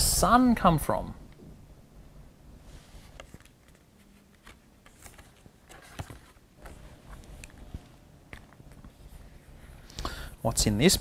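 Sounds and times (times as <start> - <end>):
book pages rustling: 2.6 - 9.9.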